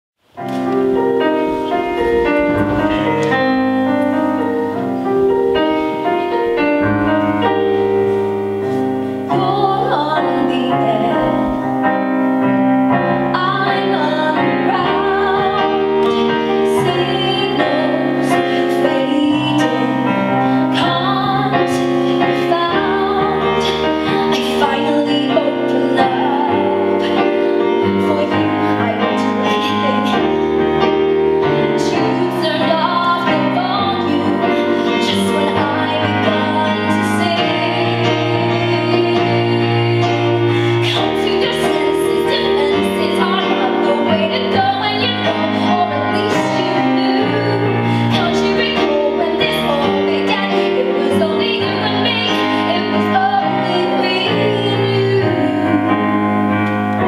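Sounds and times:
solo piano: 0.2 - 57.0
woman singing with vibrato: 9.2 - 12.2, 13.2 - 30.6, 31.4 - 56.6.

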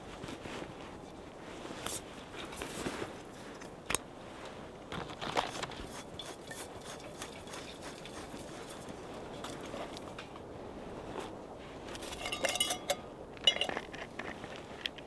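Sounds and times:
camp gear clicks and knocks: 4.9 - 7.5, 12.0 - 15.0.

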